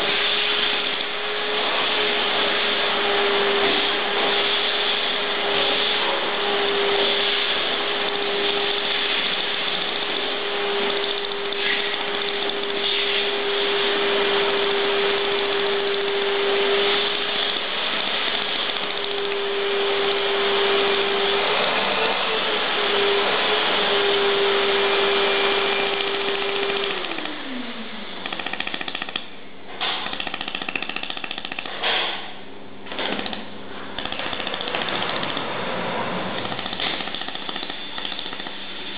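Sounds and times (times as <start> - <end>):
steady hum: 0.0 - 28.5
laser welder buzzing hiss: 0.0 - 35.5, 36.2 - 38.9.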